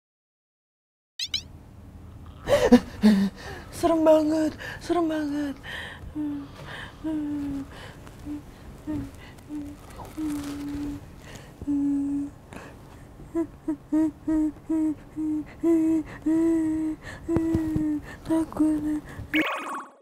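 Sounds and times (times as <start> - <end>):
woman humming: 5.1 - 19.3.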